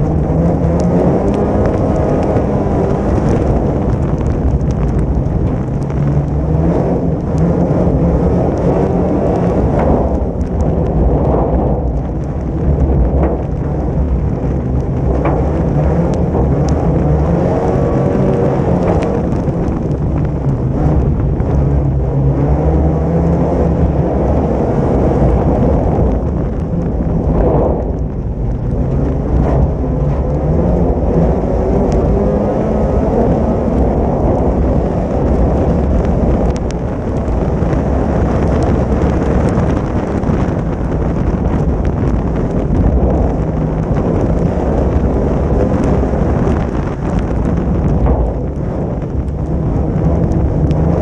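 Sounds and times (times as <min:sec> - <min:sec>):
car rumbling on wet gravel: 0:00.0 - 0:51.0
race car engine revving: 0:00.0 - 0:51.0.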